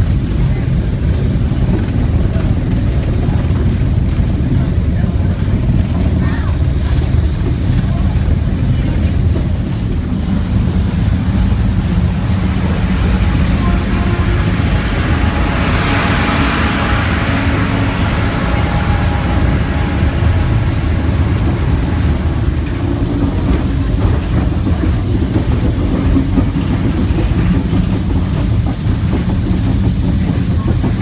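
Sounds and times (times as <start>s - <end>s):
locomotive rumbling: 0.0s - 31.0s
rush of noise: 0.0s - 31.0s.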